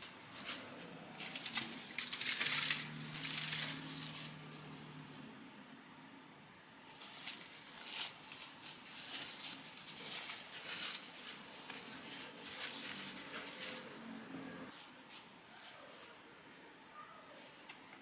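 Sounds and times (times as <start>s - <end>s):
cling film crinkling: 1.1s - 5.1s, 6.8s - 14.0s.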